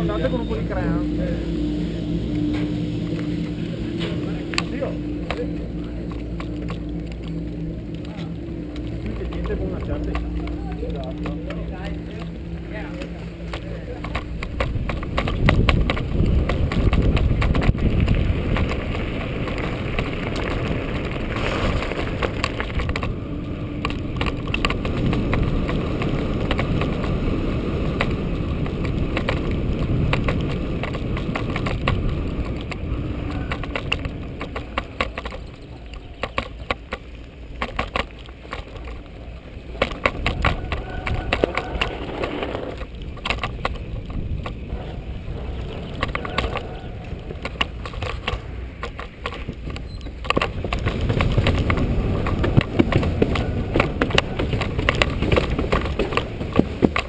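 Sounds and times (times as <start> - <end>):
bike chain and frame rattling: 0.0 - 57.0
tyres rolling over gravel: 0.0 - 57.0
wind rumbling on microphone: 0.0 - 57.0.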